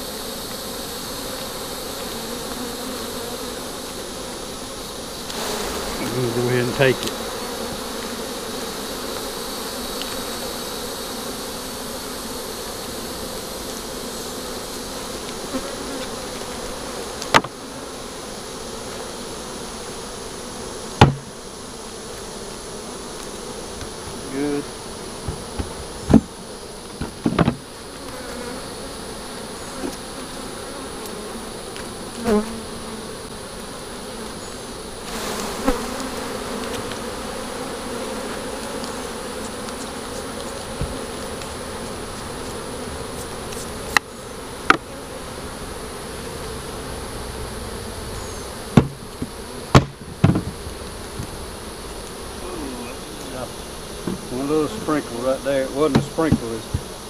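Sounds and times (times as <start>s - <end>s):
honeybees buzzing: 0.0s - 57.0s
wooden knocks of hive frames: 6.8s - 8.2s, 15.0s - 17.8s, 20.9s - 21.5s, 25.2s - 28.6s, 35.1s - 45.0s, 48.6s - 51.4s, 54.0s - 54.9s, 55.8s - 57.0s.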